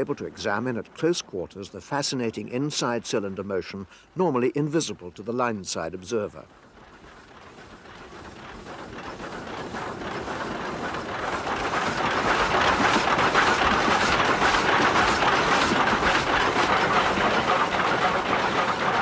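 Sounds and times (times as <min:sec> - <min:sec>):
steam locomotive rods clattering: 0:04.7 - 0:19.0.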